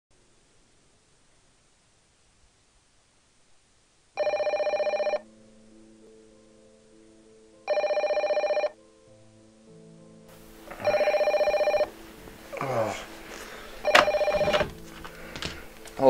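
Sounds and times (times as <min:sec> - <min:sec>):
telephone ringing: 0:04.2 - 0:05.2, 0:07.7 - 0:08.8, 0:10.7 - 0:12.0, 0:13.8 - 0:15.6
soft music: 0:04.2 - 0:16.0.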